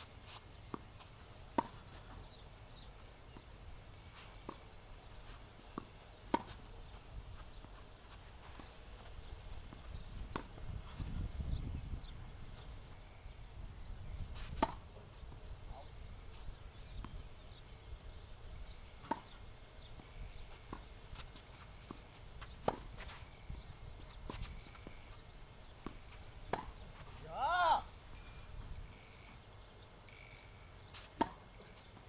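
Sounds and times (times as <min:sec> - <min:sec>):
racket hitting tennis ball: 0:01.5 - 0:02.2, 0:05.7 - 0:06.7, 0:09.7 - 0:10.6, 0:14.4 - 0:14.9, 0:19.0 - 0:19.3, 0:22.6 - 0:23.2, 0:25.8 - 0:27.6, 0:31.0 - 0:31.5.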